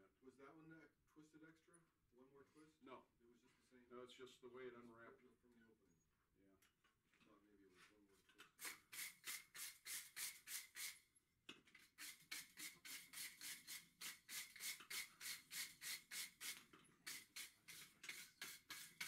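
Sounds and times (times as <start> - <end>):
hand tool scrubbing steel bar: 8.6 - 11.0, 11.8 - 19.0.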